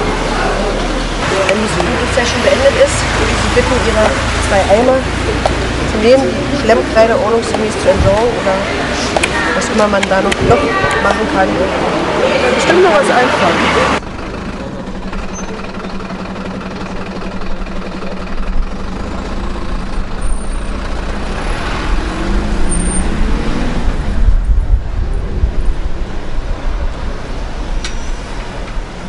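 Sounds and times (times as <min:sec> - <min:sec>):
heavy vehicle engine running: 0:00.0 - 0:29.0
street traffic: 0:00.0 - 0:29.0
low rumble: 0:13.8 - 0:29.0.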